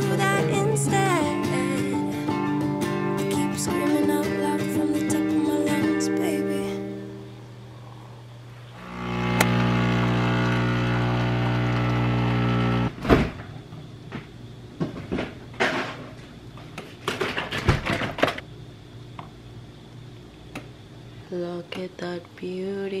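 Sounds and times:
small appliance motor humming: 0:08.7 - 0:13.0
kitchen clatter and knocks: 0:14.8 - 0:16.2, 0:16.8 - 0:18.4.

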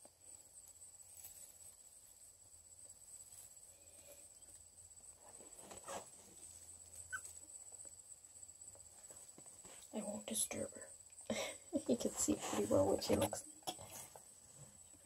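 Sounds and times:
faint high-pitched whine: 0:00.0 - 0:15.0.

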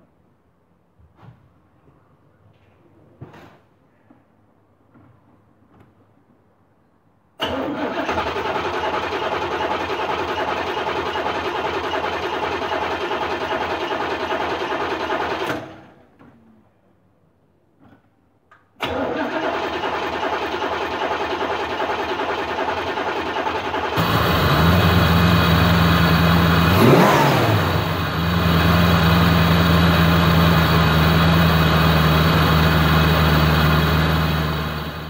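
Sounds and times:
starter motor cranking engine: 0:07.4 - 0:15.9, 0:18.8 - 0:35.0.

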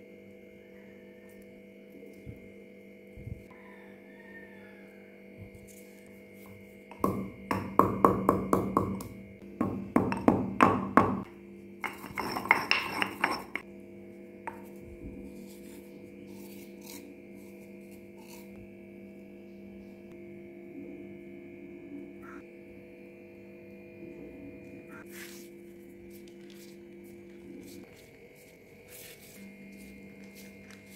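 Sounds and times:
pestle knocking in stone mortar: 0:06.9 - 0:13.6
pestle grinding in mortar: 0:06.9 - 0:13.7.

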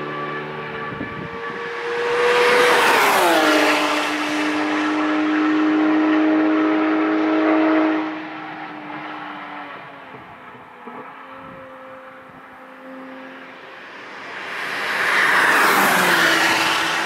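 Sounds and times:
race car engine passing: 0:00.0 - 0:17.0
tyre and wind noise: 0:00.7 - 0:03.7.

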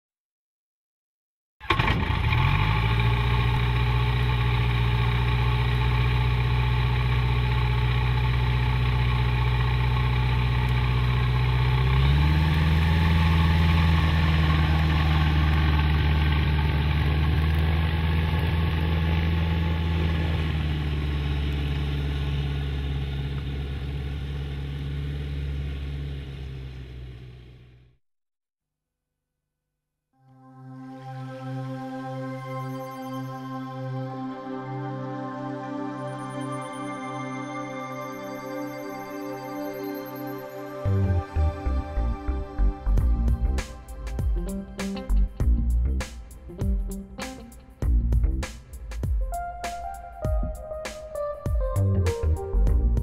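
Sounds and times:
light aircraft engine and propeller: 0:01.7 - 0:27.6.

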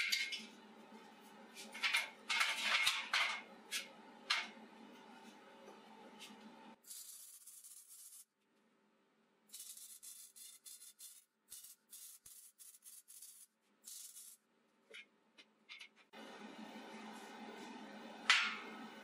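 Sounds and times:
arc welding crackling hiss: 0:09.5 - 0:14.4.

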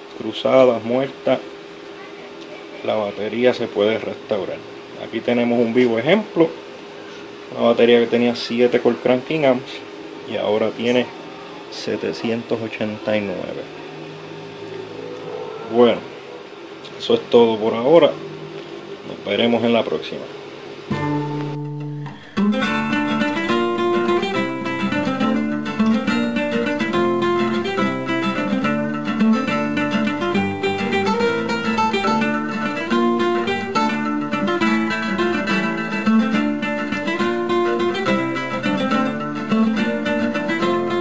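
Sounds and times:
plucked acoustic guitar music: 0:20.9 - 0:41.0.

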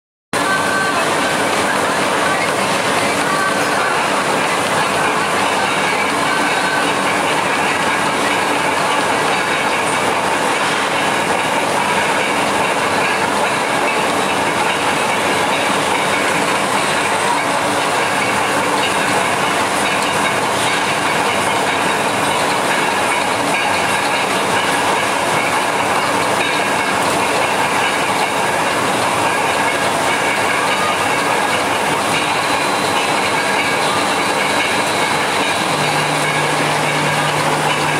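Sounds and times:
loud mechanical running noise: 0:00.4 - 0:37.9.

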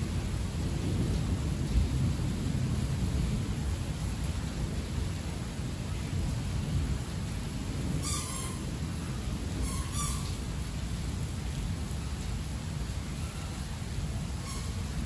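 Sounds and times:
heavy rain falling: 0:00.0 - 0:15.0
low thunder rumble: 0:00.0 - 0:15.0
short high calls: 0:08.0 - 0:08.7, 0:09.6 - 0:10.4, 0:14.4 - 0:14.9.

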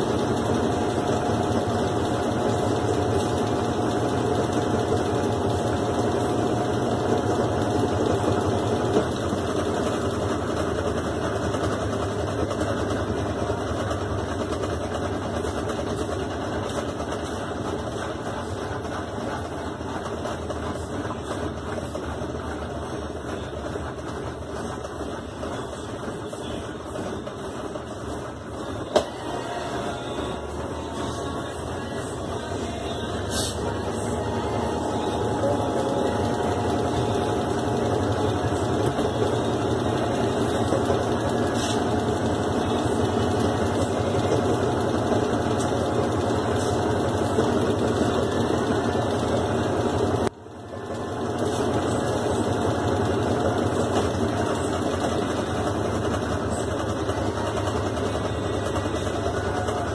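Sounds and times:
washing machine spinning: 0:00.0 - 0:59.9.

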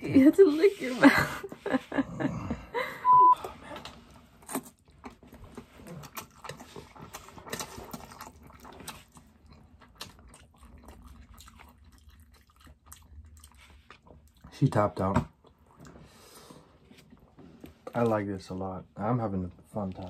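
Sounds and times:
short steady beep: 0:03.0 - 0:03.5
chewing and noodle slurping: 0:03.8 - 0:14.5.

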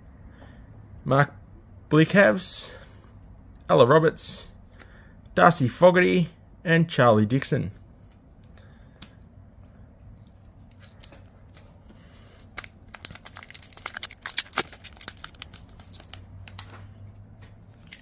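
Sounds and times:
foil pack tearing and crinkling: 0:12.5 - 0:16.6.

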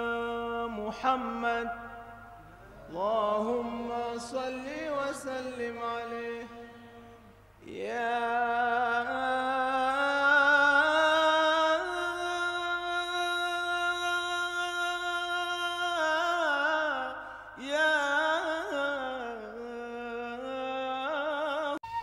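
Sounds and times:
person chanting: 0:00.0 - 0:21.8.

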